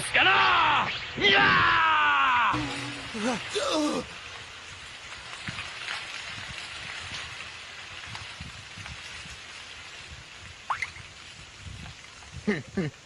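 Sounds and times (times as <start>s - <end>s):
hiss with faint crackling: 0.0s - 13.0s
short rising tone: 2.5s - 3.6s.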